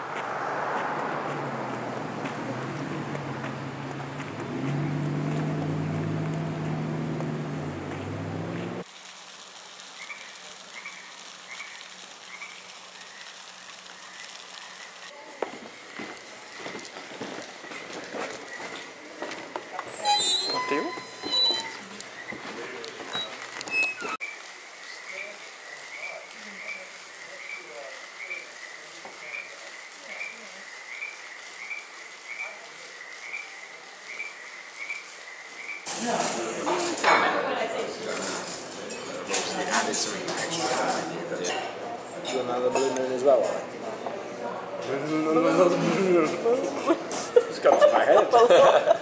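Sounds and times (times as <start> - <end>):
outdoor hiss: 0.0 - 44.6, 45.2 - 49.0
footsteps on wooden porch: 0.1 - 8.8, 15.3 - 20.0, 21.0 - 23.8
faint chirping calls: 24.2 - 35.8.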